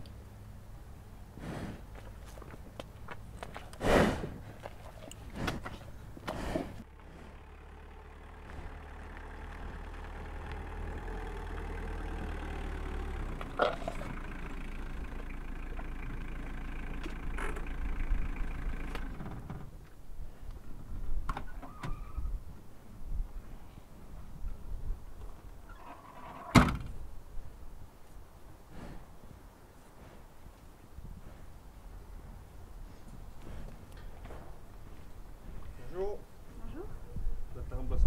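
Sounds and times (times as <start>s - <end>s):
bull snorting: 1.3s - 2.4s, 3.4s - 12.8s, 13.4s - 14.6s
vehicle engine idling: 5.2s - 19.9s.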